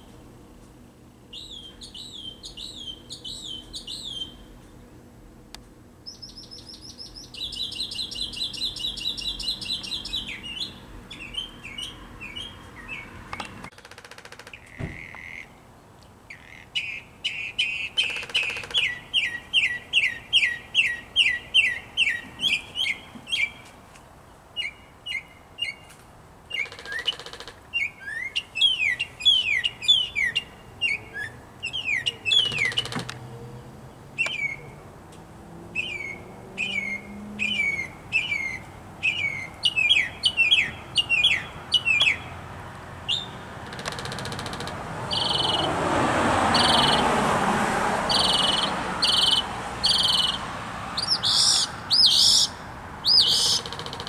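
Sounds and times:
mockingbird singing: 0:01.3 - 0:04.5, 0:06.0 - 0:13.7, 0:14.3 - 0:15.6, 0:16.3 - 0:23.7, 0:24.6 - 0:25.9, 0:26.5 - 0:34.8, 0:35.7 - 0:42.4, 0:43.1 - 0:45.8, 0:46.5 - 0:47.1, 0:48.1 - 0:54.0.

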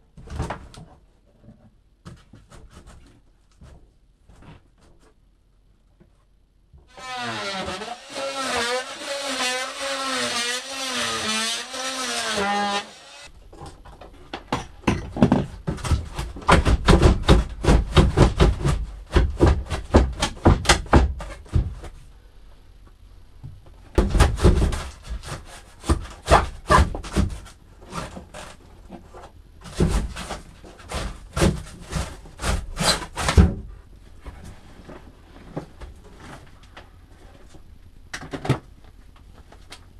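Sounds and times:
knocks bangs and scrapes: 0:13.7 - 0:22.0, 0:24.0 - 0:36.5.

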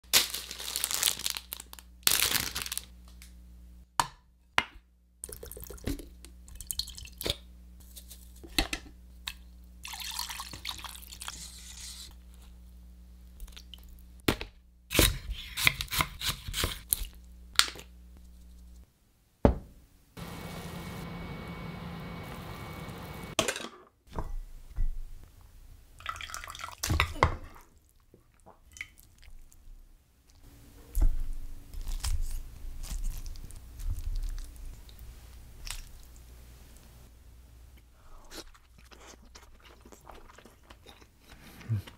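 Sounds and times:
chopsticks scraping in saucepan: 0:11.2 - 0:12.1
liquid pouring and dripping: 0:26.0 - 0:26.9.

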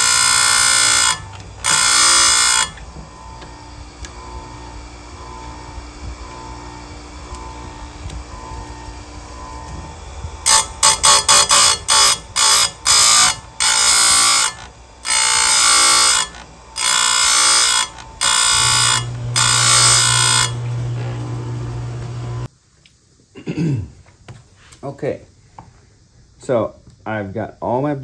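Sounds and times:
low motor hum: 0:00.0 - 0:10.9, 0:11.6 - 0:22.5
grinder screeching on steel: 0:00.0 - 0:22.5.

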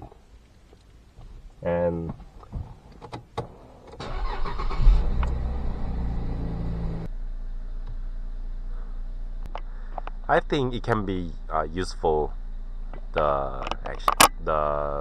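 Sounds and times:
car engine starting and idling: 0:02.9 - 0:14.8.

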